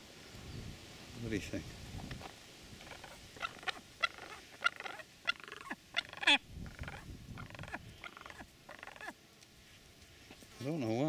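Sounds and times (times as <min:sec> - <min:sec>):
pheasant calling: 0:02.0 - 0:09.2.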